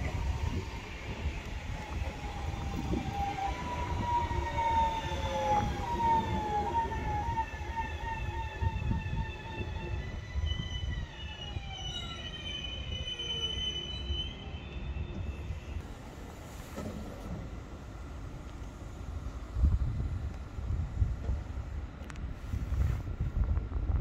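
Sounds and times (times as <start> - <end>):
train rumble: 0.0 - 13.1, 14.3 - 24.0
high-pitched squeal: 0.2 - 15.8.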